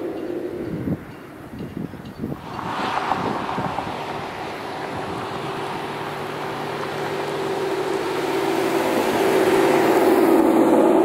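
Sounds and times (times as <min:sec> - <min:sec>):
car exhaust passing by: 0:00.0 - 0:11.0.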